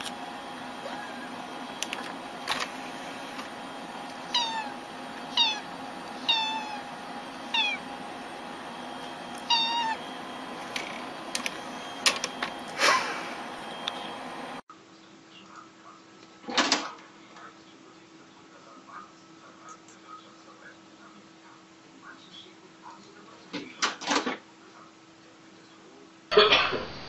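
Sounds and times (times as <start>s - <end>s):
cat meowing: 0.8s - 1.5s, 4.3s - 6.9s, 7.5s - 7.9s, 9.4s - 10.1s.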